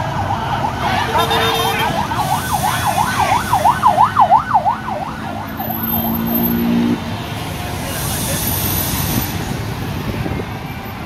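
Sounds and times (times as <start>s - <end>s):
siren yelping: 0.0s - 6.4s
low steady horn tone: 0.8s - 2.0s.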